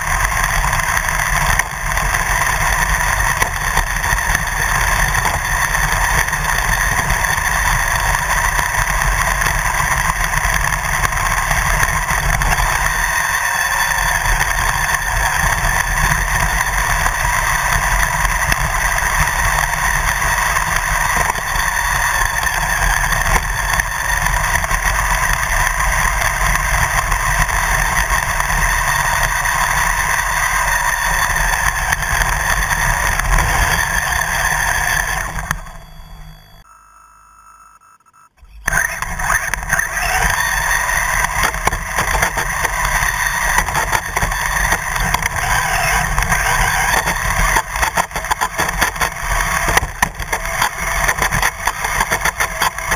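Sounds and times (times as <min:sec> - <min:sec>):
rc car motor running: 0:00.0 - 0:36.7, 0:38.4 - 0:52.9.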